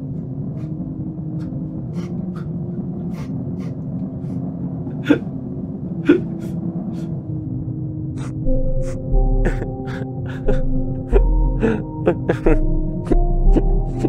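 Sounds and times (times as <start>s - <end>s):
steady low drone: 0.0s - 14.0s.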